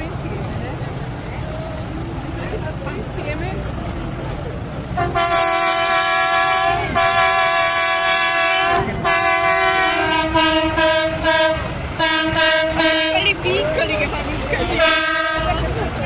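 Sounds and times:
vehicle air horn blasts: 5.0 - 13.4, 14.7 - 15.7.

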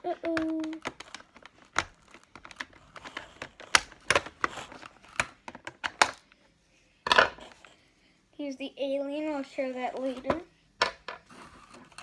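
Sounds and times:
plastic packaging clicks: 0.0 - 6.3.

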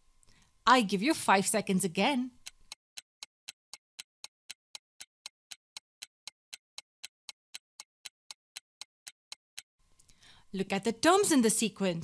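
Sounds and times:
timer ticking: 2.3 - 9.7.

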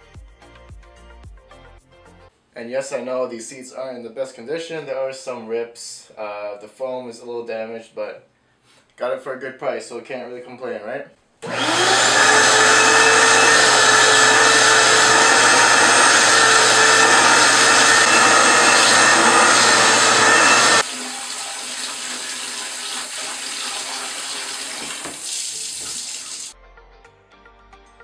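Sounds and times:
shop vac whining: 11.4 - 26.5
tap water splashing into bucket: 20.9 - 26.5.

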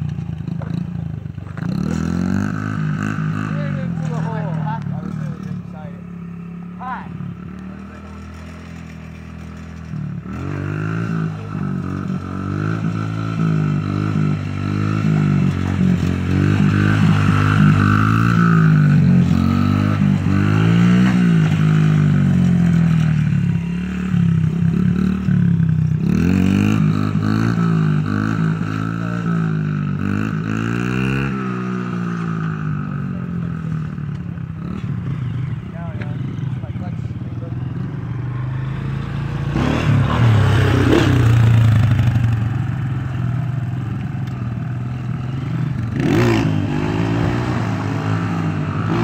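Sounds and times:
pit bike engine revving: 1.5 - 49.0.

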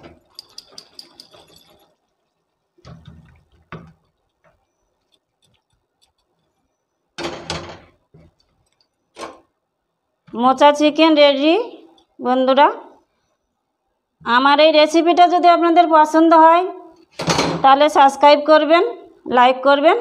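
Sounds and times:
metal utensils clinking: 0.0 - 2.2.

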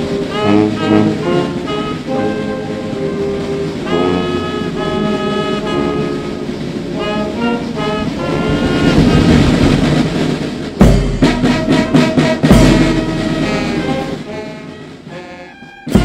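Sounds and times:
brass band playing chords: 0.0 - 16.0
rushing noise: 0.0 - 16.0.

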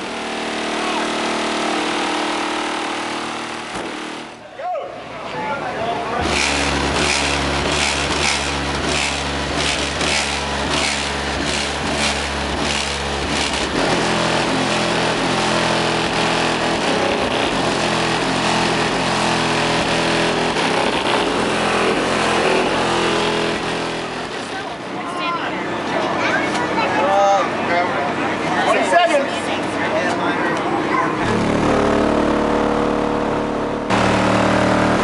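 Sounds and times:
bass-heavy music at high volume: 6.2 - 24.3, 31.2 - 35.0.

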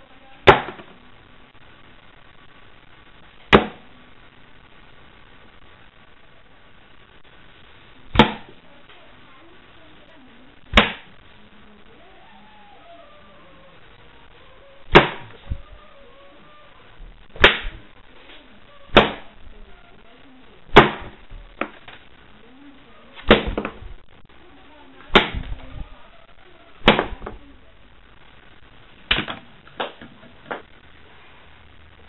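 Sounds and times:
playing cards smacking a board: 8.2 - 8.5, 10.8 - 11.1, 17.4 - 17.8, 29.1 - 30.6.

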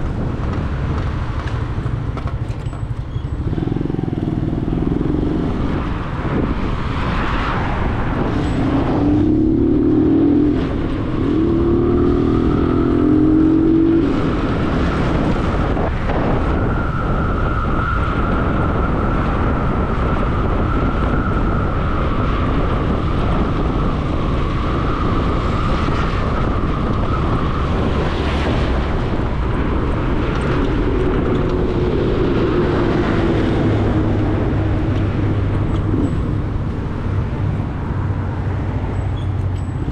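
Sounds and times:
road noise: 0.0 - 39.9
vehicle engine speeding up: 3.4 - 16.6, 22.1 - 39.9.

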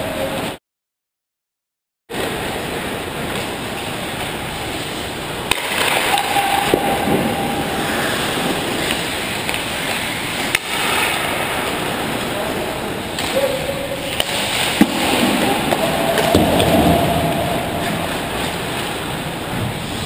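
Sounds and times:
sticks and puck clacking: 3.3 - 19.3
skates hissing on ice: 7.8 - 11.2.

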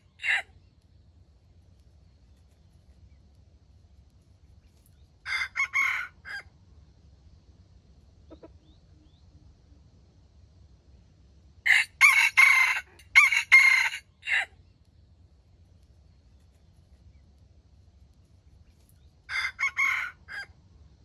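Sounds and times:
rooster crowing: 0.0 - 0.5, 5.2 - 6.5, 11.7 - 14.5, 19.3 - 20.6.

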